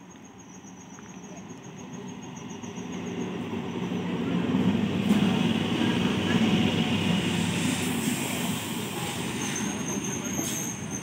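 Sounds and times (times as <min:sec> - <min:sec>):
crickets chirping: 0:00.0 - 0:04.9
train rumble: 0:01.0 - 0:11.0.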